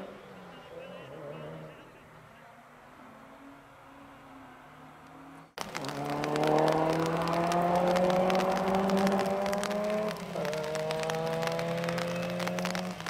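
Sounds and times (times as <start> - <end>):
car engine accelerating hard: 5.7 - 13.0.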